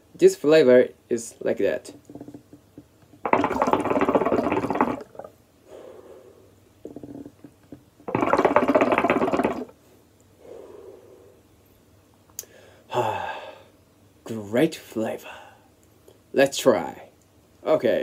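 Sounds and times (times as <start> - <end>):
water bubbling and gurgling: 2.0 - 2.6, 3.2 - 5.4, 6.8 - 7.5, 8.1 - 9.7.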